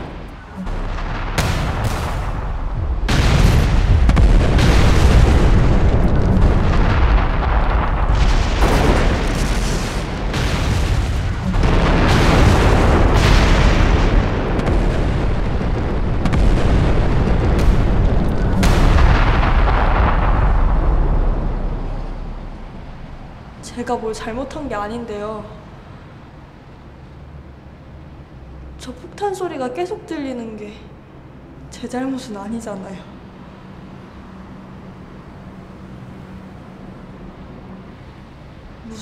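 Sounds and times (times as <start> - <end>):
bomb explosions booming: 0.0 - 23.6.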